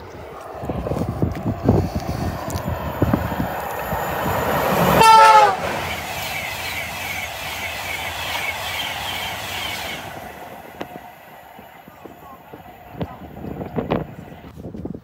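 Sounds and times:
rush of passing train coaches: 0:00.0 - 0:15.0
train horn blast: 0:04.8 - 0:06.0.

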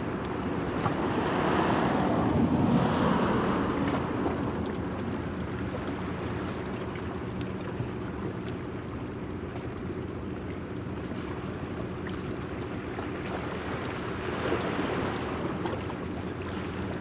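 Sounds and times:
low engine hum: 0:00.0 - 0:17.0.

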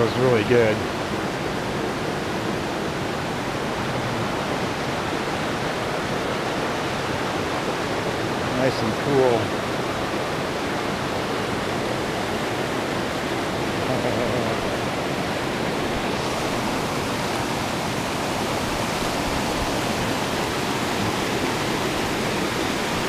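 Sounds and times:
creek pouring over rocks: 0:00.0 - 0:23.0.

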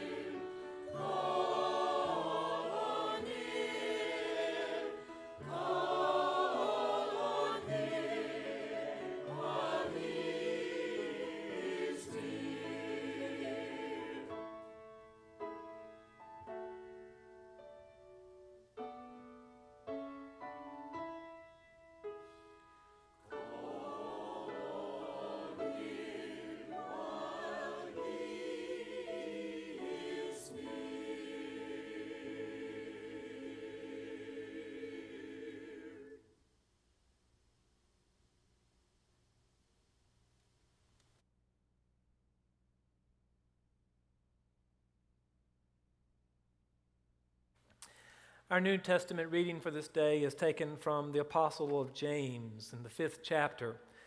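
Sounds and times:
choir singing in parts: 0:00.0 - 0:14.7, 0:23.3 - 0:36.3.

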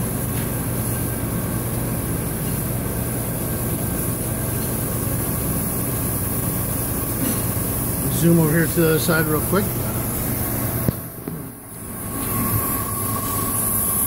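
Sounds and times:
grinding machine hum: 0:00.0 - 0:14.0.

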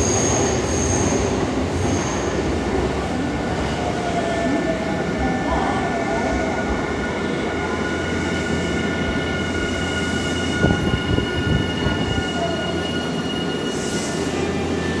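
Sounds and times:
high-pitched train whine: 0:06.4 - 0:15.0.

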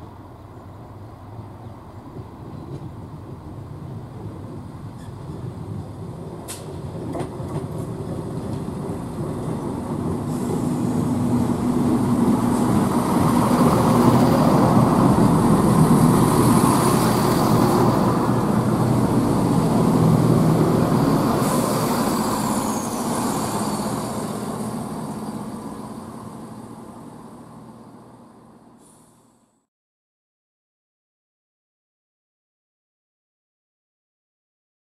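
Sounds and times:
wheels rumbling on rails: 0:00.0 - 0:29.6
diesel train engine drone: 0:00.0 - 0:29.7
wheel squeal: 0:21.4 - 0:24.4.

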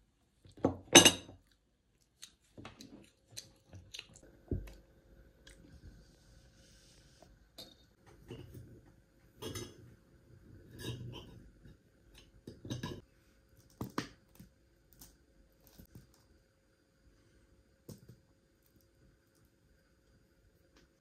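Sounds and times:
dishes and utensils clattering: 0:07.6 - 0:08.7, 0:09.4 - 0:09.9, 0:10.6 - 0:13.1.

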